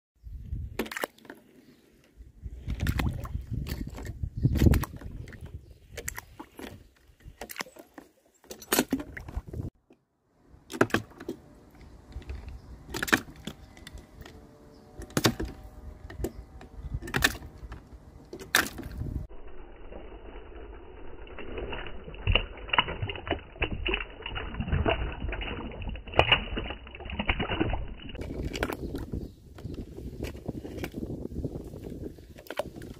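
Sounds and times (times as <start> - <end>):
toy cars splashing into water: 18.4 - 28.8.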